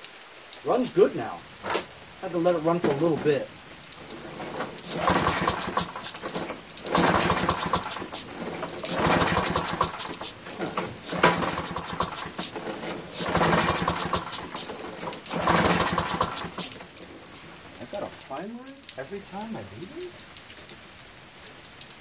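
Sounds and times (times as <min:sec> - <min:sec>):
lawn mower engine running: 0:01.5 - 0:18.3.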